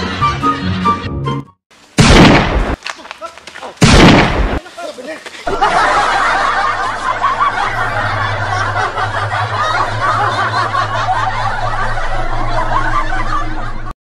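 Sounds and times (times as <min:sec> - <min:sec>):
crowd laughing: 0:05.4 - 0:14.0
low hum: 0:05.8 - 0:13.9.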